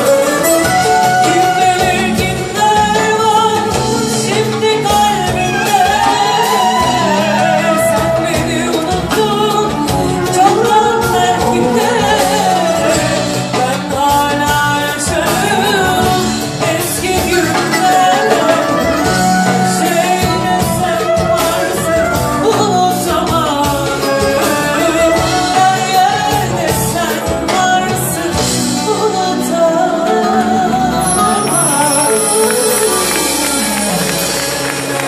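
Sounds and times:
drum strokes: 0:00.0 - 0:28.9
woman singing into microphone: 0:00.0 - 0:34.4
live band music: 0:00.0 - 0:35.0.

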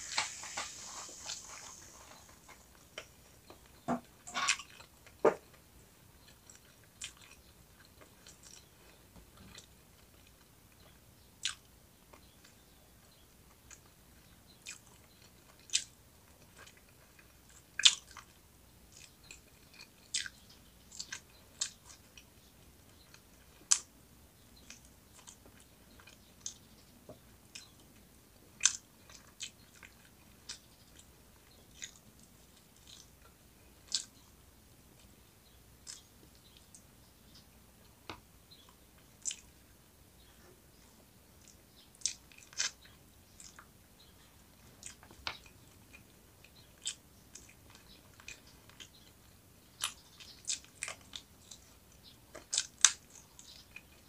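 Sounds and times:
person chewing crunchy food: 0:00.0 - 0:05.6, 0:06.2 - 0:12.6, 0:13.5 - 0:22.3, 0:24.6 - 0:26.6, 0:28.6 - 0:34.2, 0:38.6 - 0:39.6, 0:41.4 - 0:54.0.

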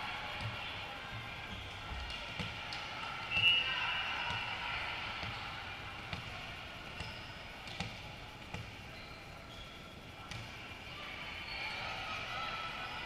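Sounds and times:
background noise: 0:00.0 - 0:13.0
volleyball thumps: 0:07.0 - 0:08.8.

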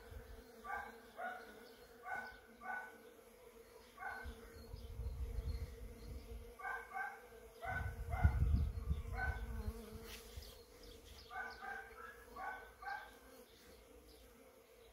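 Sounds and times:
bees buzzing: 0:00.0 - 0:14.9
dog barking: 0:00.7 - 0:03.0, 0:04.0 - 0:04.3, 0:06.6 - 0:08.4, 0:09.1 - 0:09.5, 0:11.3 - 0:13.2
wind rumble on microphone: 0:04.7 - 0:06.5, 0:07.6 - 0:09.8.

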